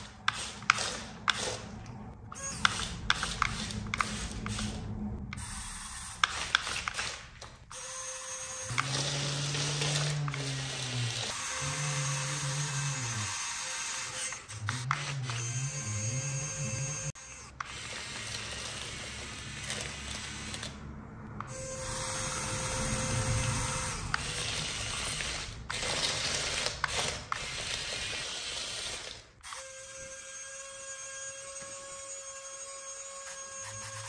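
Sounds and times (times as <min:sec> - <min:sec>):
mechanical whirring with ratcheting gears: 0:02.3 - 0:20.8, 0:21.4 - 0:29.7.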